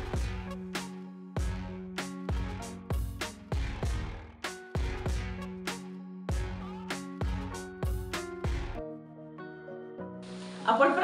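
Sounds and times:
music with drum beat: 0.0 - 8.8.

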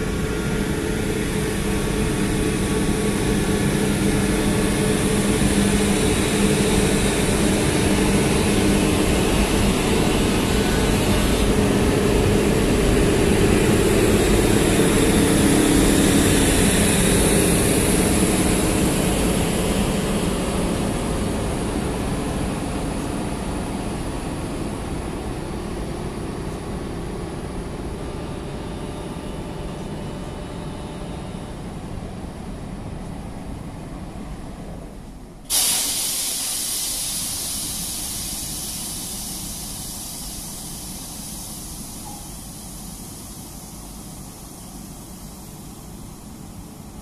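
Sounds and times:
electric locomotive running: 0.0 - 34.2, 35.5 - 47.0
compressed air hissing: 35.5 - 46.8.

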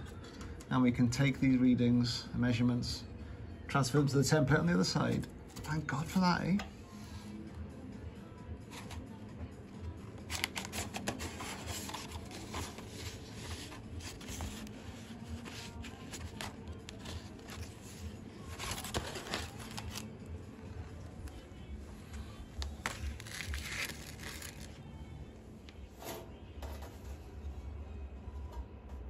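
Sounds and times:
paper crinkling and rustling: 10.2 - 20.2, 22.2 - 24.8.

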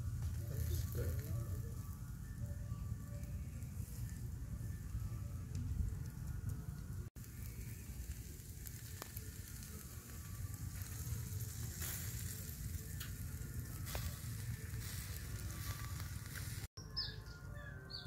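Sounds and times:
meat sizzling over charcoal: 0.0 - 16.7
small crackles: 0.1 - 1.9, 2.9 - 16.7.

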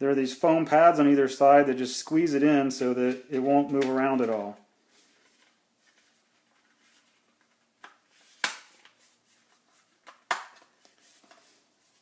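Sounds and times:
soft handling noise: 2.8 - 12.0.

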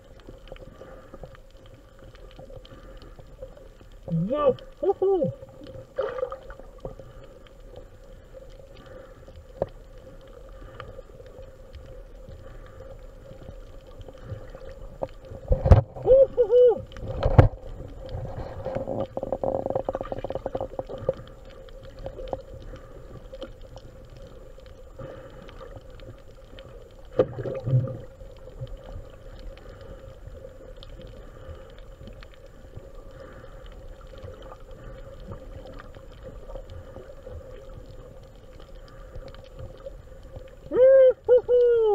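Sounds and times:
muffled underwater hum: 0.0 - 41.9
bubbling gurgles: 3.4 - 7.2, 13.4 - 24.4, 25.0 - 29.8.

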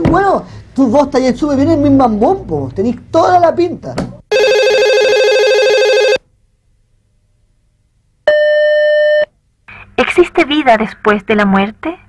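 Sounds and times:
electronic telephone ringing: 4.3 - 6.2.

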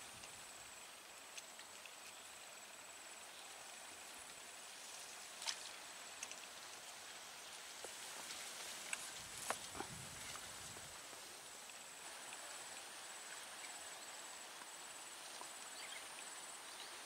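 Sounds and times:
small ticks: 0.2 - 0.4, 1.2 - 2.5, 3.6 - 13.9, 14.5 - 16.9
high-pitched insect trill: 8.4 - 17.0.

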